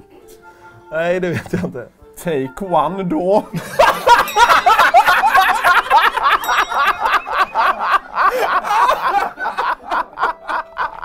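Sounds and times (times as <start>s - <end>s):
men laughing: 3.4s - 11.0s.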